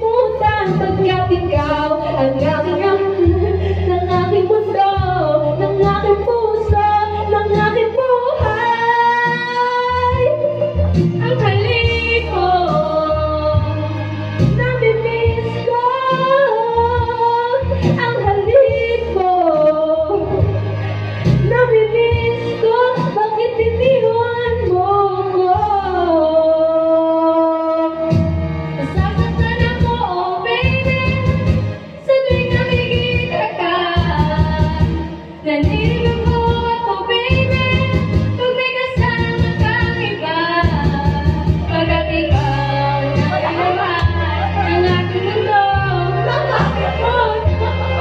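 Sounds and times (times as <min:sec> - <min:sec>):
backing track: 0:00.0 - 0:48.0
girl singing karaoke: 0:00.0 - 0:48.0
steady bass beat: 0:40.6 - 0:48.0.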